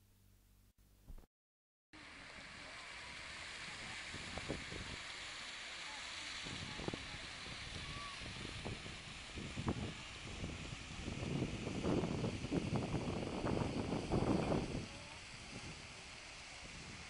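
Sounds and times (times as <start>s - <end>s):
fountain water jets splashing: 2.0s - 17.0s
faint voices: 2.2s - 8.5s.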